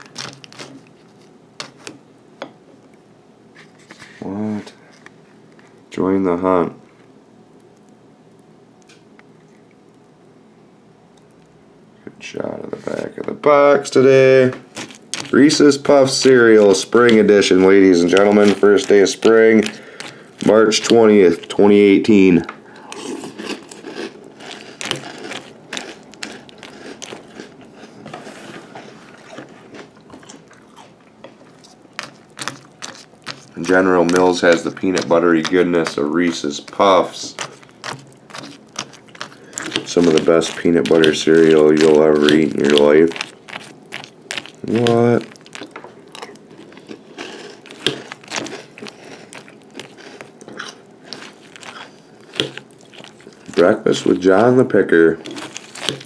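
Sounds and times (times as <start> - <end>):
spoon stirring cereal in bowl: 14.7 - 21.9, 31.2 - 45.8.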